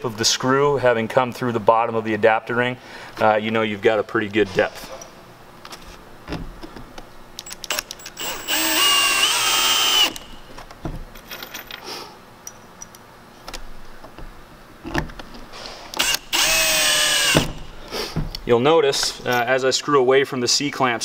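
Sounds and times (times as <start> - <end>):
cordless drill whine: 7.5 - 10.4, 16.0 - 17.7
handling clicks and knocks: 12.5 - 16.1.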